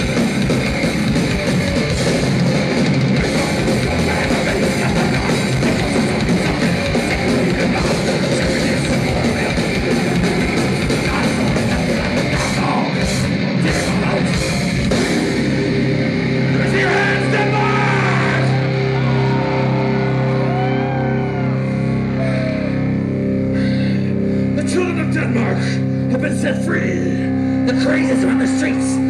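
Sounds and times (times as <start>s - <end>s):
fast drums: 0.0s - 19.5s
death metal band playing: 0.0s - 29.0s
person yelling: 16.7s - 19.5s.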